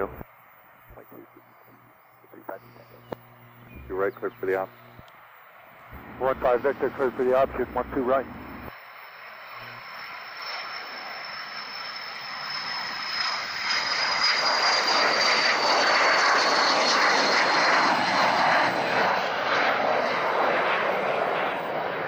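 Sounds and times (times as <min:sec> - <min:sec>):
jet taking off: 0:00.0 - 0:05.0, 0:05.8 - 0:22.0
high fan whine: 0:00.0 - 0:08.8, 0:09.5 - 0:09.9.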